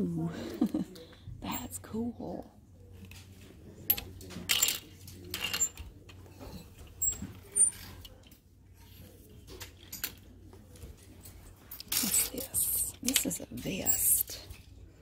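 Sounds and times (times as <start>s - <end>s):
plastic hangers clicking on metal rack: 3.9s - 6.2s, 11.7s - 14.7s.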